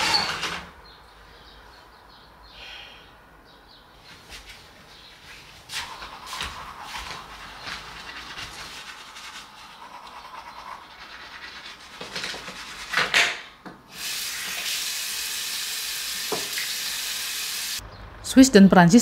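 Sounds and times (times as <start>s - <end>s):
toothbrush scrubbing teeth: 5.8s - 13.0s
sink tap running: 14.0s - 17.8s.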